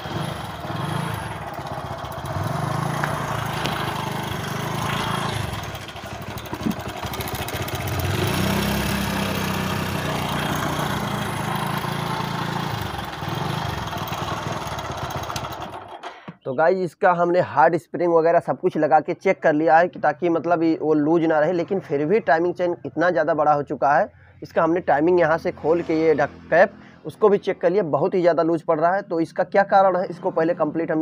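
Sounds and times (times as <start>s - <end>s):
motorcycle engine running: 0.0s - 16.2s.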